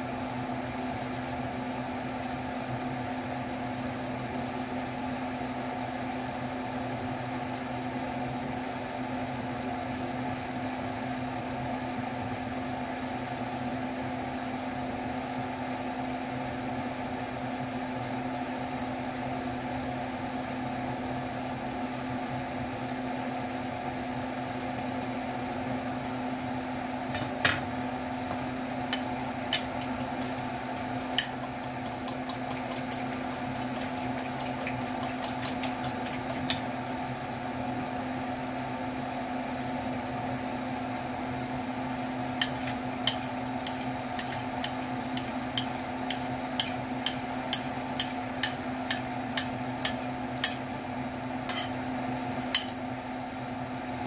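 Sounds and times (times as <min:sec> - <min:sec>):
mechanical hum: 0:00.0 - 0:54.0
fork clinking against ceramic bowl: 0:42.4 - 0:50.6, 0:51.5 - 0:51.8, 0:52.6 - 0:52.8.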